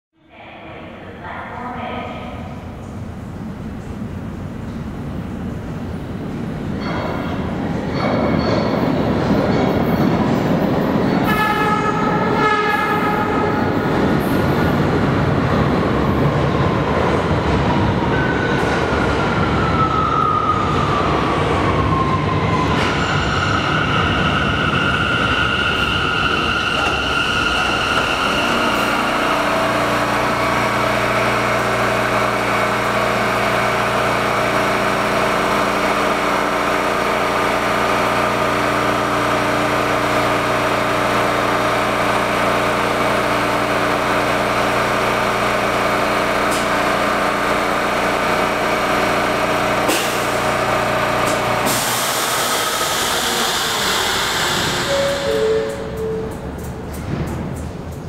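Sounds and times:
train equipment multi-tone hum: 0.2s - 58.0s
train motor and brake whine: 22.6s - 58.0s.

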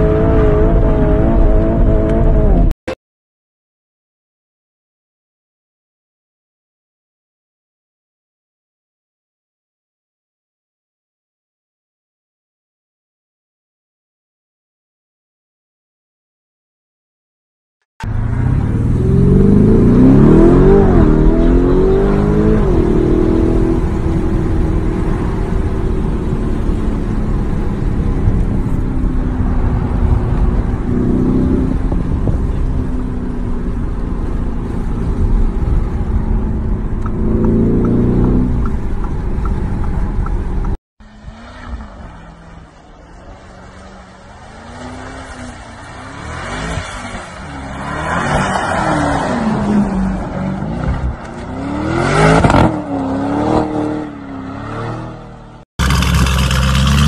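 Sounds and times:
car engine accelerating hard: 0.0s - 2.7s, 18.0s - 57.0s
faint car engine outside: 0.0s - 2.8s, 18.0s - 57.0s.

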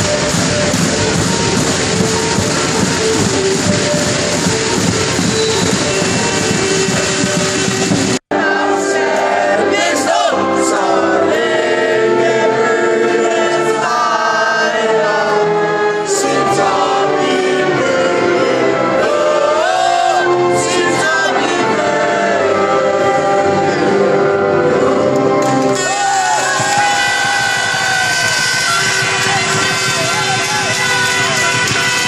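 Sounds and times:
crowd singing a chant: 8.3s - 27.7s.

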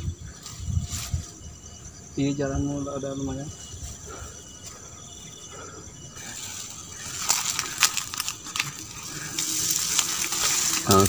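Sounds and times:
leaves and twigs rustling: 0.0s - 11.0s
twigs snapping: 6.4s - 11.0s.

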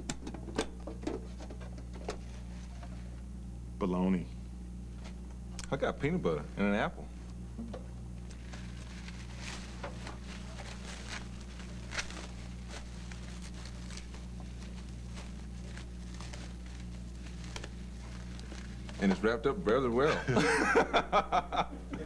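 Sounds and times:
steady low hum: 0.0s - 22.0s
plastic wrapping crinkling: 8.2s - 19.3s.

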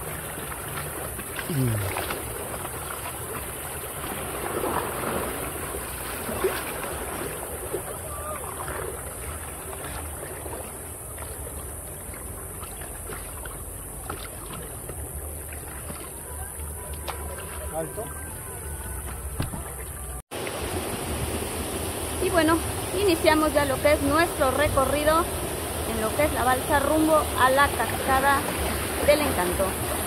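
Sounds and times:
river water rushing: 0.0s - 30.0s
faint voices: 16.1s - 20.2s.

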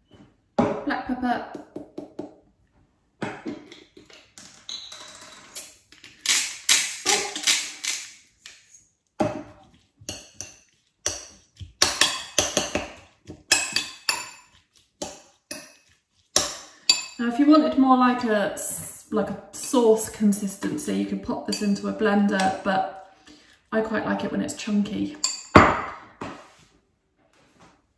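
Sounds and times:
metal spoon scraping ceramic bowl: 7.1s - 17.8s, 19.5s - 23.1s, 24.5s - 25.6s.

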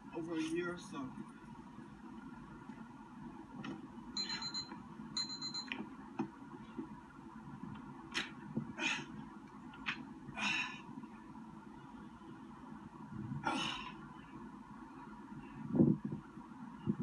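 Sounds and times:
low background hum: 0.0s - 17.0s
man breathing forcefully: 10.4s - 10.9s.

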